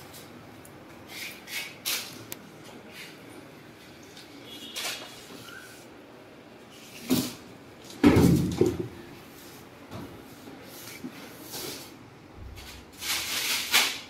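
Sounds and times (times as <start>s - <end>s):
washing machine heavy thump: 8.0s - 9.0s.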